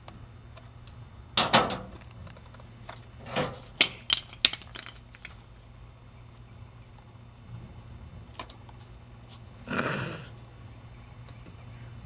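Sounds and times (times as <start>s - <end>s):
skateboard trucks clicking and rattling: 1.4s - 5.4s.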